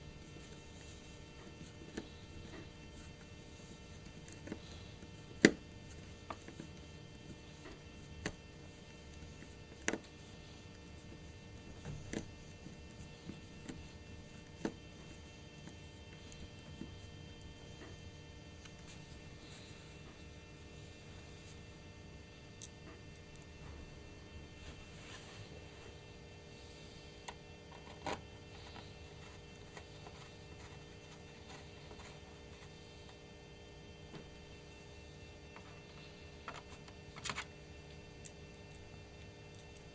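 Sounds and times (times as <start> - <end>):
low steady hum: 0.0 - 39.9.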